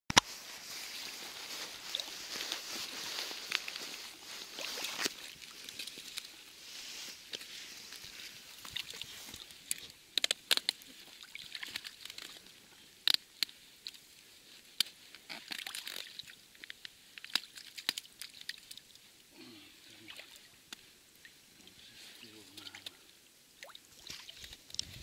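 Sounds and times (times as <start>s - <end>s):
water sloshing and trickling: 0.8s - 9.9s, 10.8s - 12.6s, 19.9s - 25.0s.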